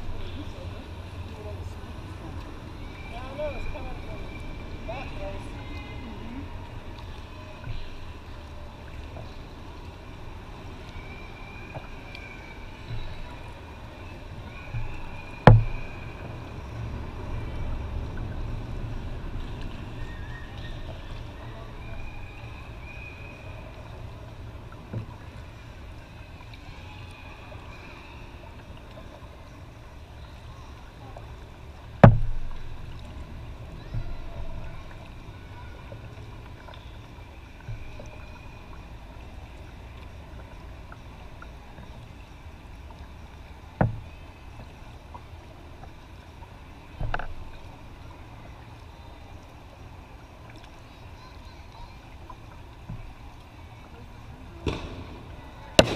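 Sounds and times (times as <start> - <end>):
low camera rumble: 0.0 - 55.9
knocks on kayak hull: 15.5 - 15.8, 32.0 - 32.5.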